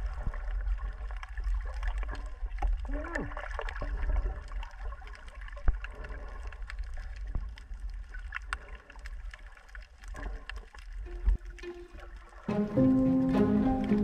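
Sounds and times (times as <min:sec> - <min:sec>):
water moving against microphone: 0:00.0 - 0:14.0.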